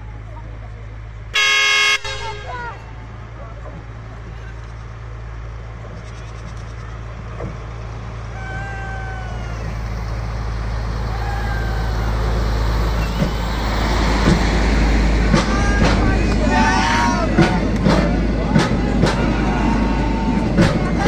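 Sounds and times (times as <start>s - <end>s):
diesel locomotive engine rumble: 0.0s - 21.0s
sharp knocks: 14.2s - 16.4s.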